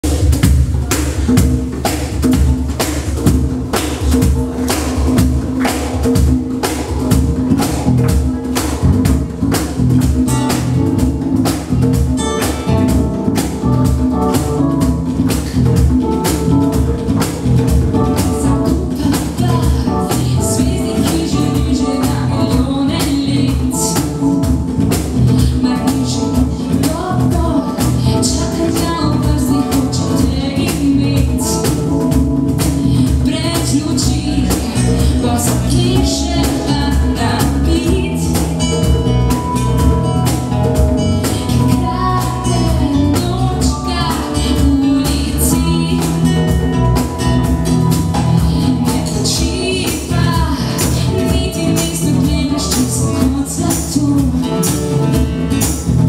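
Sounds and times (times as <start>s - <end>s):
acoustic guitar: 0.0s - 56.0s
bass guitar: 0.0s - 56.0s
hand percussion beat: 0.0s - 56.0s
keyboard: 0.0s - 56.0s
woman singing: 16.0s - 40.0s, 41.0s - 55.3s.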